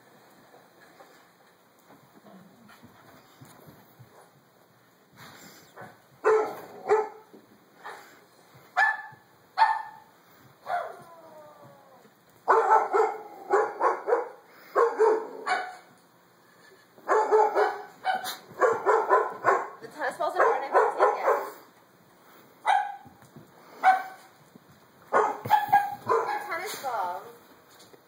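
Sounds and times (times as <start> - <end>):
dog barking: 6.2 - 7.2, 8.8 - 10.1, 12.5 - 15.9, 17.1 - 19.8, 20.4 - 21.6, 22.6 - 23.0, 23.8 - 24.2, 25.1 - 26.5.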